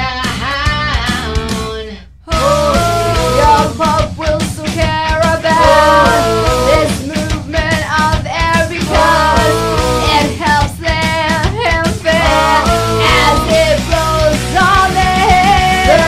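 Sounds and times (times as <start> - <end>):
rock music: 2.4 - 16.0.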